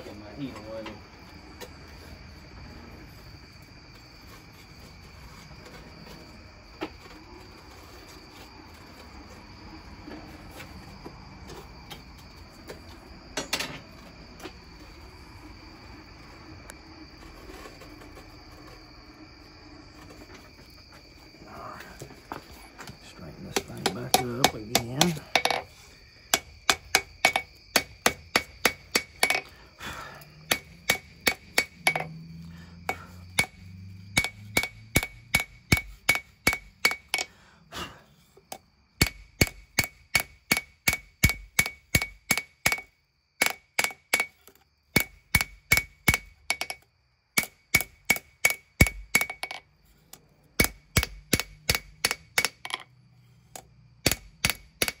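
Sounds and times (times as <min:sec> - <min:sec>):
hammer striking steel on anvil: 0:23.5 - 0:25.6, 0:26.3 - 0:29.5, 0:30.5 - 0:32.2, 0:33.3 - 0:37.3, 0:39.0 - 0:44.4, 0:45.0 - 0:46.8, 0:47.4 - 0:49.6, 0:50.6 - 0:52.8, 0:54.0 - 0:55.0.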